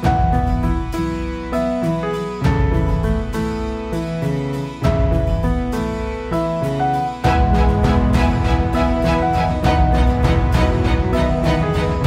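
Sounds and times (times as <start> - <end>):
melody of held notes: 0.0 - 12.0
music beat: 4.8 - 12.0.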